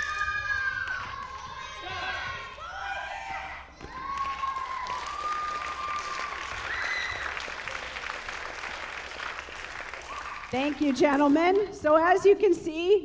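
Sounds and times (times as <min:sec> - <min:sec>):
audience clapping: 0:00.0 - 0:02.6, 0:03.8 - 0:11.8.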